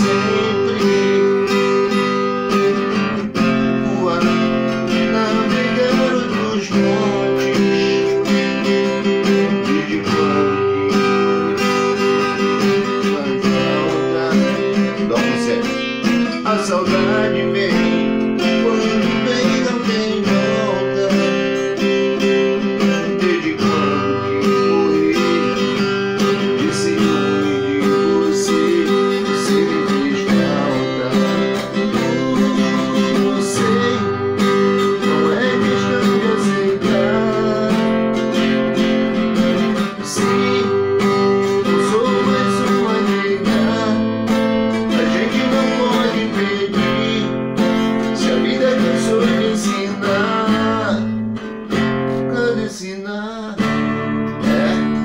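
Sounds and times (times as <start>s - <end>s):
acoustic guitar strumming: 0.0s - 55.0s.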